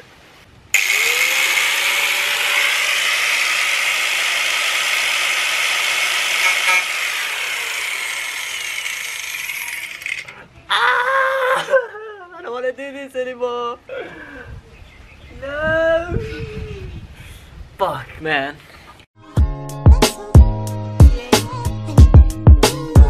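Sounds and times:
angle grinder cutting metal: 0:00.8 - 0:10.4.

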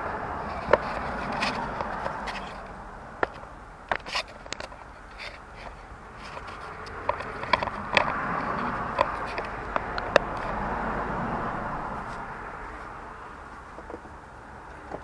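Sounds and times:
passing vehicle road noise: 0:00.0 - 0:15.0
tools tapping engine parts: 0:00.6 - 0:10.6, 0:13.5 - 0:15.0.

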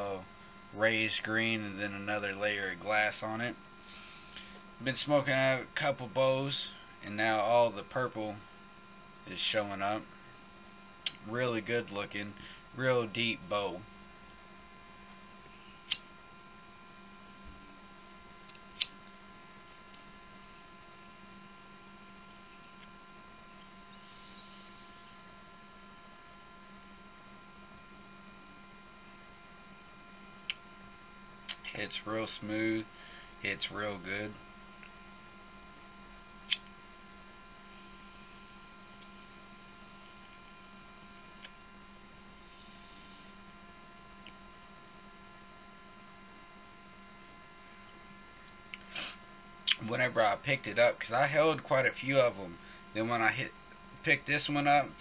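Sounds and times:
steady electrical hum: 0:00.0 - 0:55.0
breathy exhale: 0:03.8 - 0:04.6, 0:32.9 - 0:33.4, 0:42.4 - 0:43.3.

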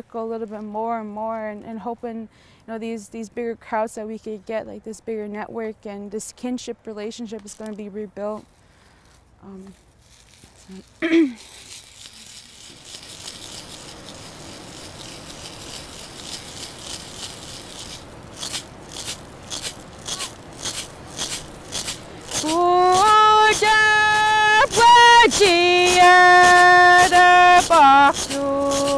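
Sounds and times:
shell rattle shaken: 0:10.2 - 0:28.9
woman singing long notes: 0:22.4 - 0:28.9.

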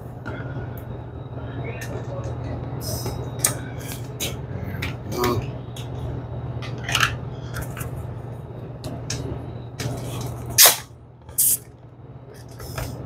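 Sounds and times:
steady low hum: 0:00.0 - 0:13.0
gas hissing: 0:09.0 - 0:11.7.

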